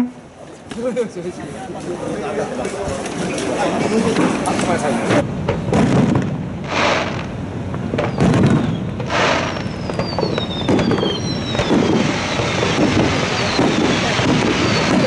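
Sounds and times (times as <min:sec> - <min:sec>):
fireworks bangs and crackling: 0:02.6 - 0:15.0
descending firework whistles: 0:06.6 - 0:07.3, 0:07.9 - 0:15.0.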